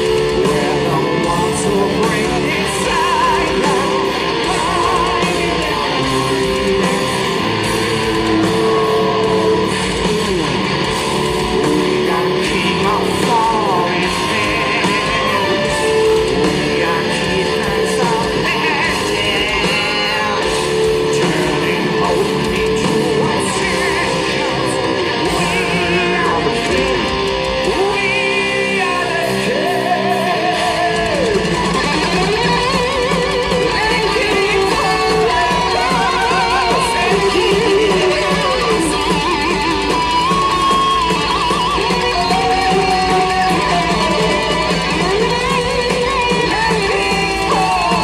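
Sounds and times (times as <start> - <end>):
metal band playing live: 0.0 - 48.0
person singing: 0.0 - 48.0.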